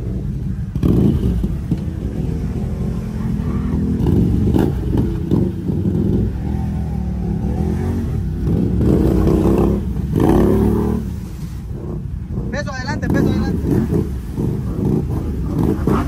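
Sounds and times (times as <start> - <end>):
quad bike engine revving: 0.0 - 16.0
tyres churning through mud: 0.0 - 16.0.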